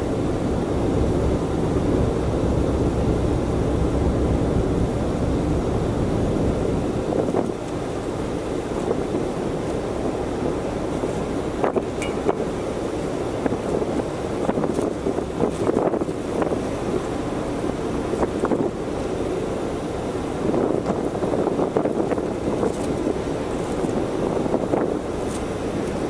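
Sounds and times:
rush of ship's wash: 0.0s - 26.0s
wind buffeting microphone: 0.0s - 26.0s.

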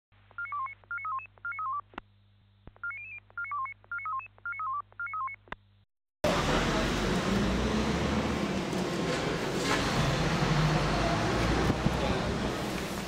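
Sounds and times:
electronic keypad beeps: 0.4s - 1.8s, 2.8s - 5.4s.

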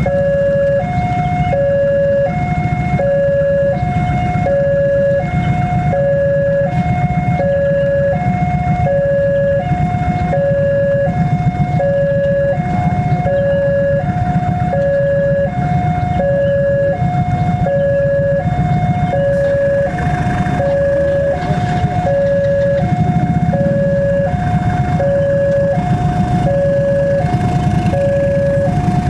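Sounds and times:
diesel locomotive rumble: 0.0s - 29.0s.

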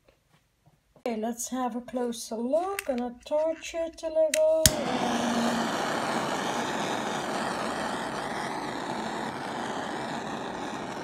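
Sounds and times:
gas torch hissing: 4.6s - 11.0s.

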